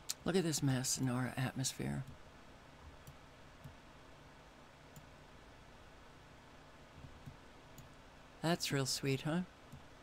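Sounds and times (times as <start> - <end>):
light steady hiss: 0.0 - 10.0
computer mouse clicks: 4.9 - 5.2, 7.0 - 8.0.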